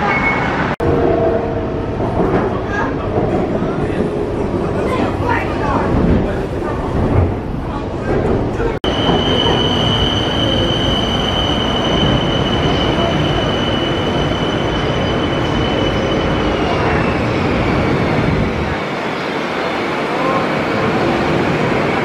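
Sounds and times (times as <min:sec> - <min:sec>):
high-pitched train whine: 0:08.8 - 0:22.0.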